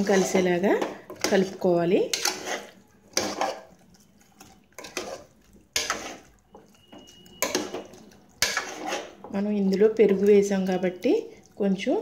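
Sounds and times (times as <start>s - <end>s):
spoon scraping pressure cooker: 0.0s - 3.7s.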